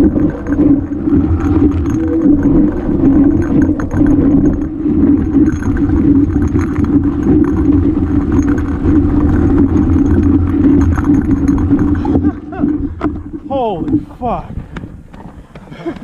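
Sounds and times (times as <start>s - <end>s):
bike rattling over stones: 0.0s - 16.0s
bike tyres rumbling on rock: 0.0s - 16.0s.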